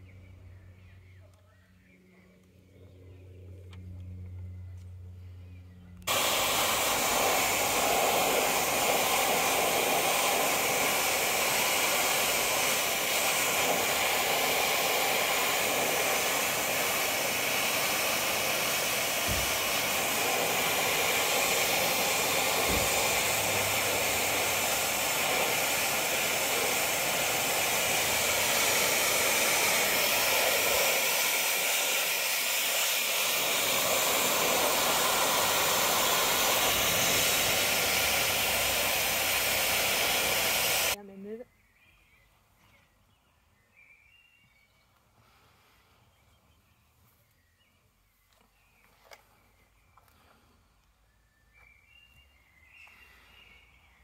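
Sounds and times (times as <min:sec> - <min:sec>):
hair dryer blowing: 0:06.1 - 0:41.0.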